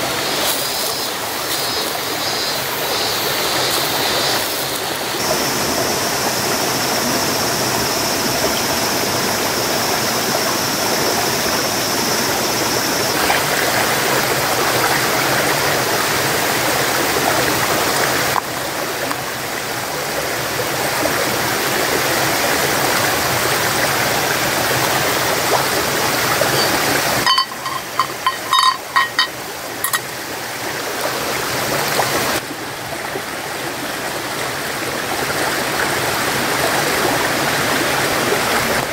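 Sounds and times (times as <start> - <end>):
running water rushing: 0.0 - 38.9
thin high steady tone: 26.0 - 30.1
short ringing clinks: 26.5 - 30.0.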